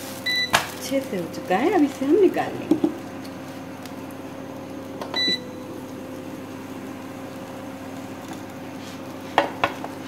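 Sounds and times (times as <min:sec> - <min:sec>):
cooktop low hum: 0:00.0 - 0:10.0
cooktop beep: 0:00.2 - 0:00.7, 0:05.0 - 0:05.8.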